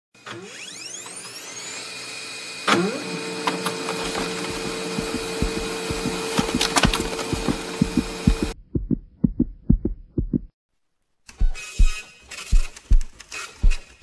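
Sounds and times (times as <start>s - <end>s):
held drone: 4.0s - 8.6s
low beat-like thumps: 4.5s - 10.5s, 11.4s - 13.8s.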